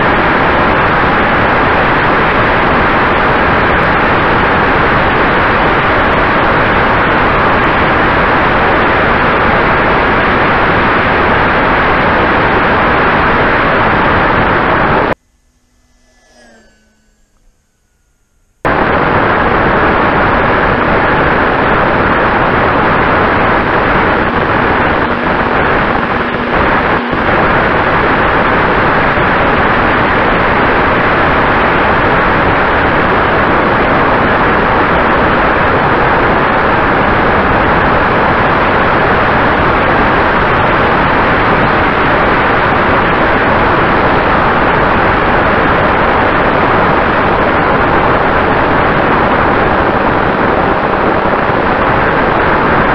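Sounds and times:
faint motor whine: 0.0 - 52.9
rush of airflow: 18.6 - 52.9.

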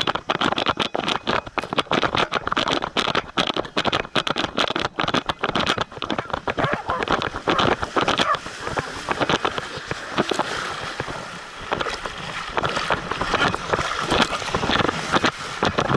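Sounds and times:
dog splashing through surf: 6.6 - 15.7.

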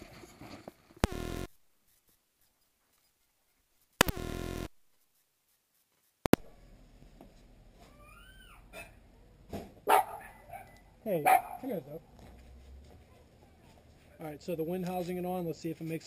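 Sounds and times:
faint outdoor background noise: 0.0 - 16.0
microphone electrical buzz: 1.0 - 1.5, 4.0 - 4.8
microphone clicks: 4.0 - 4.7.

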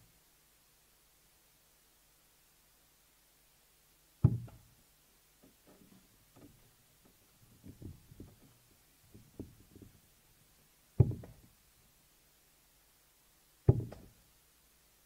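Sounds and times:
darts thudding into dartboard: 4.2 - 4.6, 11.0 - 11.4, 13.7 - 14.1.

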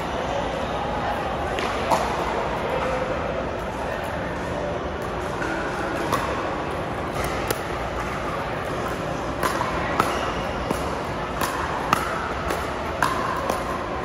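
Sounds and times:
ball bouncing on court: 9.3 - 14.0.

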